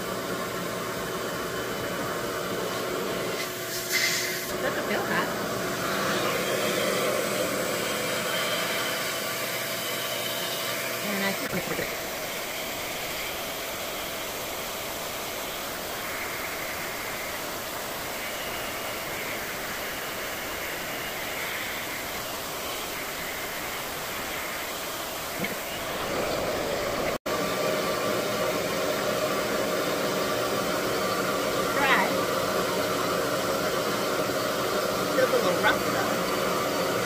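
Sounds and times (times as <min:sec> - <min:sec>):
vacuum blow dryer running: 0:00.0 - 0:37.0
hair drawn into hose: 0:03.4 - 0:04.5.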